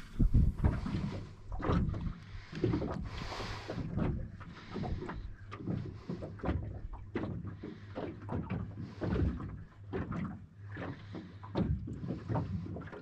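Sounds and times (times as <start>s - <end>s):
waves slapping against boat hull: 0.0s - 13.0s.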